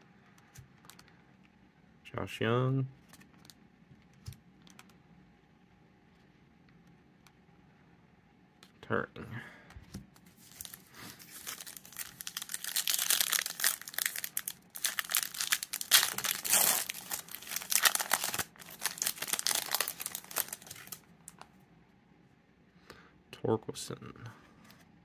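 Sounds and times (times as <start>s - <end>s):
foil wrapper crinkling and tearing: 10.3s - 21.4s.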